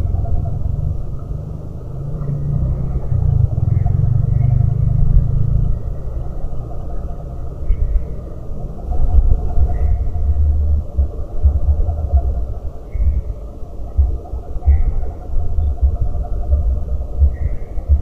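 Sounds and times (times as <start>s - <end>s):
motorbike passing: 0.0s - 11.4s.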